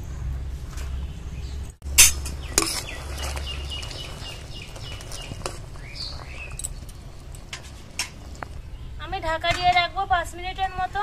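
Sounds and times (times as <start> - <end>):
sugar syrup bubbling: 2.3 - 8.9.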